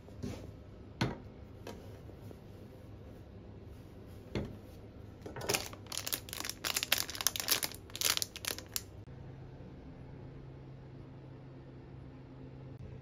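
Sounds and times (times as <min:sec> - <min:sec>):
wrapping crinkling: 0:05.4 - 0:09.0.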